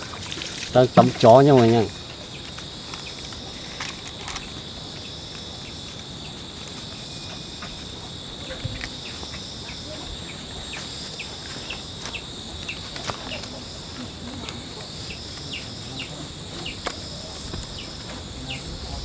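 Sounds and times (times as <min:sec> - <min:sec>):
insects droning: 0:00.0 - 0:19.0.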